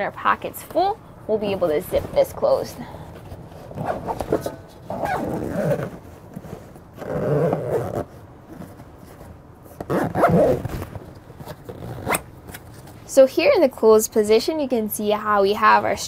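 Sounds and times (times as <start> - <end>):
zipper being pulled shut: 3.6 - 8.8, 9.7 - 12.9.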